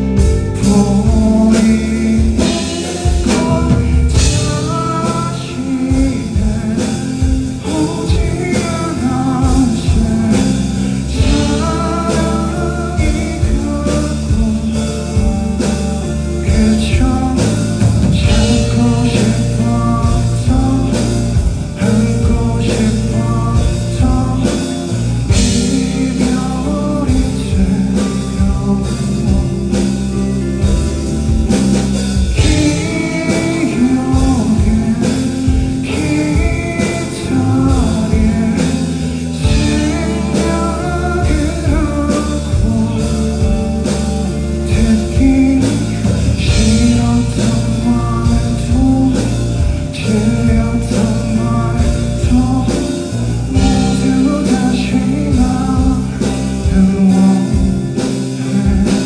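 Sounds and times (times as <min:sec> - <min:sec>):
drum kit: 0:00.0 - 0:59.0
electric guitar: 0:00.0 - 0:59.0
man singing into a microphone: 0:00.0 - 0:59.0.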